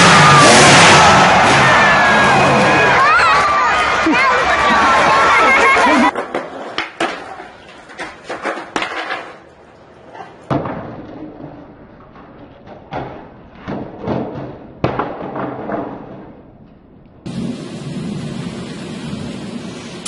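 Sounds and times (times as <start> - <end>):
skateboard wheels rolling: 1.3 - 16.5
skateboard clacks and thuds: 5.8 - 9.6, 10.4 - 16.5.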